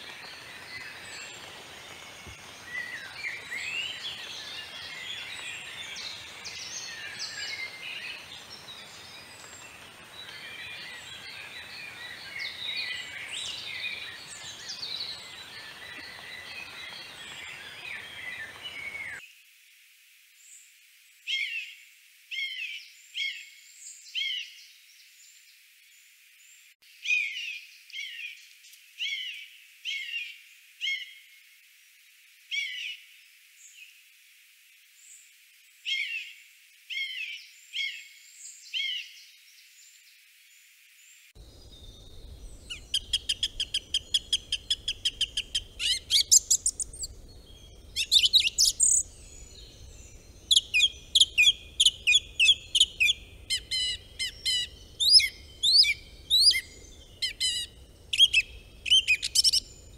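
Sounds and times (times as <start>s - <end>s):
bird giving high clear calls: 48.0s - 49.1s, 50.4s - 59.6s.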